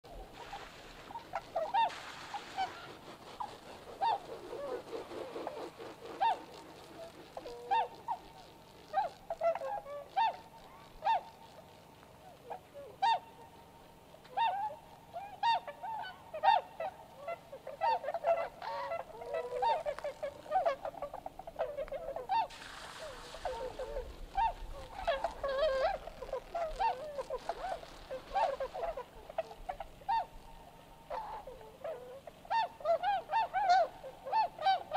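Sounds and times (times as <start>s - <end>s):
brief hiss of noise: 0.1s - 13.1s, 21.8s - 30.6s
swans honking: 0.1s - 34.9s.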